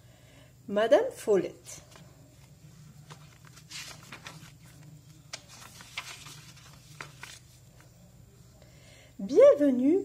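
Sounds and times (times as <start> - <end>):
low steady hum: 0.0 - 9.5
paper pages rustling: 1.8 - 8.0.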